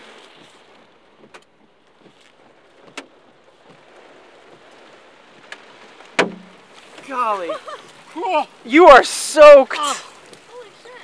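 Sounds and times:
heavy rain on a car: 0:00.0 - 0:11.0.

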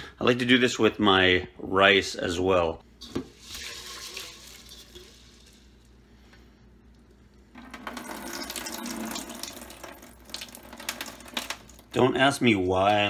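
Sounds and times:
tap water running into pot: 0:03.0 - 0:05.8, 0:07.4 - 0:12.0.

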